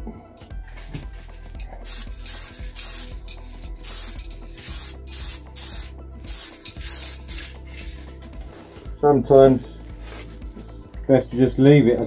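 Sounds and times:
spray paint hissing bursts: 0.8 - 8.1.

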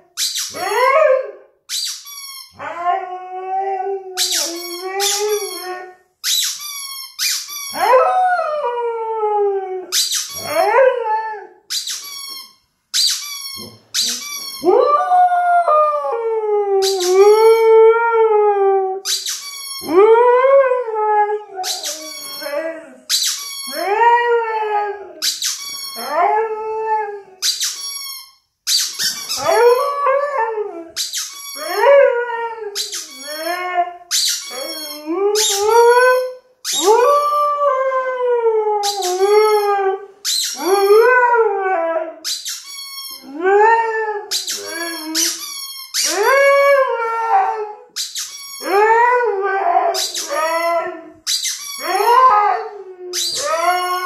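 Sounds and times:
rubber toy squealing: 4.2 - 7.8, 11.7 - 14.7, 19.0 - 20.0, 21.6 - 23.8, 27.4 - 29.6, 32.8 - 37.0, 44.3 - 46.2, 48.0 - 48.8, 49.9 - 52.4, 53.1 - 54.0
dog howling: 29.4 - 30.9, 46.1 - 47.9, 48.6 - 51.1, 51.8 - 54.0.

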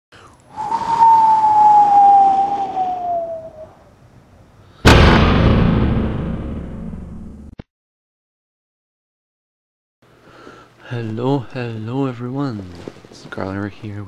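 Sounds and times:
falling whistle with hiss: 0.5 - 3.7
loud impact: 4.8 - 7.6.

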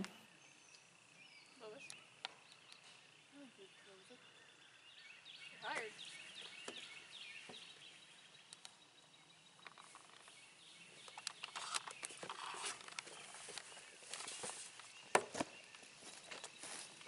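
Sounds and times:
rustles: 9.5 - 17.0
footsteps on bare ground: 11.6 - 17.0.

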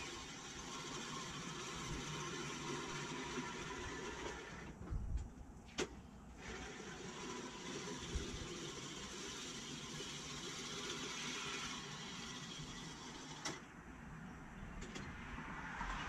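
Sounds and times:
reel mower whirring: 0.0 - 4.8, 6.3 - 13.7.

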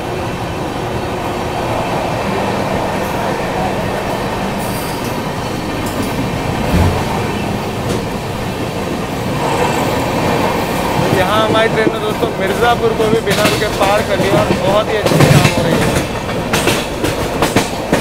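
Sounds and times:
wheels rumbling on rail: 0.0 - 18.0
low thump: 6.7 - 7.2.

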